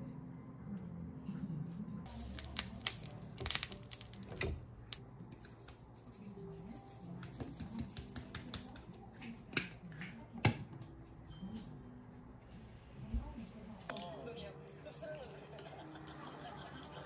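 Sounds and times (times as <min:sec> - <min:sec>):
seasoning shaker ticks: 0:02.1 - 0:04.4.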